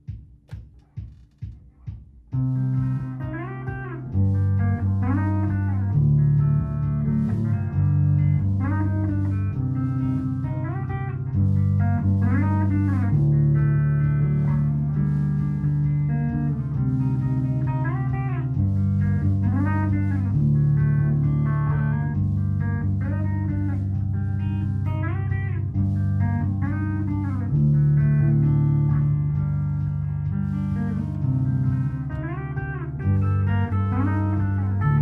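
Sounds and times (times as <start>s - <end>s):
looped low electric guitar line: 2.3s - 35.0s
electric guitar lead melody: 2.4s - 35.0s.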